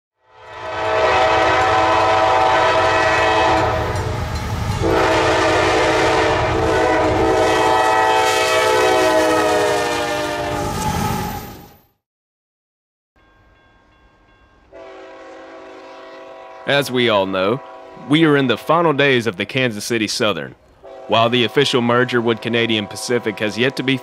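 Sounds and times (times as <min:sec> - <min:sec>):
locomotive air horn: 0:00.2 - 0:11.3, 0:14.7 - 0:18.4, 0:20.8 - 0:24.0
low rumble of train: 0:00.2 - 0:11.8, 0:13.2 - 0:24.0.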